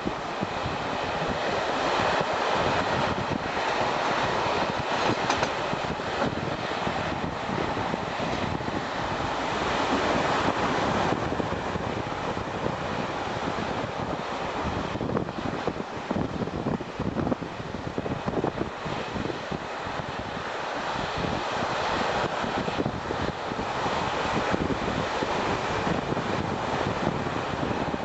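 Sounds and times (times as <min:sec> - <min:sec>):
train wheels on rails: 0:03.5 - 0:07.0.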